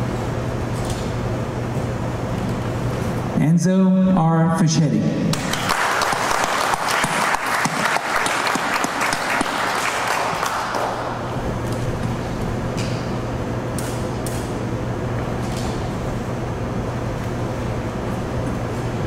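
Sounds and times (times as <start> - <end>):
audience applauding: 5.3 - 11.3
low hum: 10.7 - 19.0.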